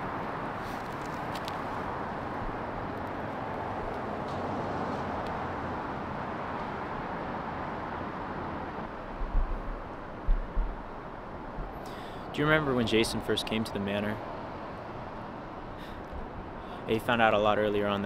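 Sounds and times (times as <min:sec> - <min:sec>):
distant city traffic hum: 0:00.0 - 0:18.0
low thumps: 0:09.1 - 0:11.8.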